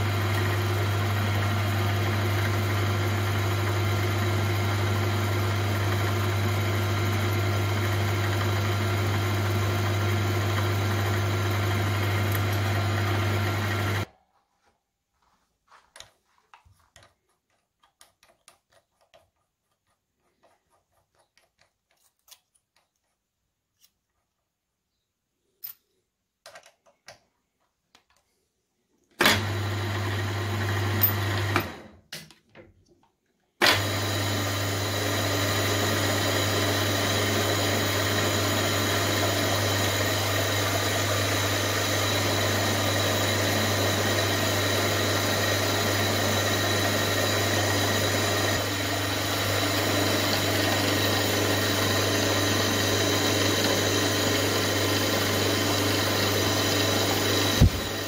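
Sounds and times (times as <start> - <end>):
milling machine spindle motor: 0.0 - 14.1, 33.6 - 58.0.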